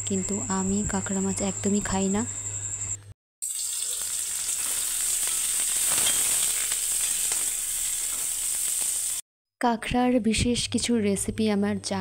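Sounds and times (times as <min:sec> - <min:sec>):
onions sizzling in hot oil: 0:03.4 - 0:09.2.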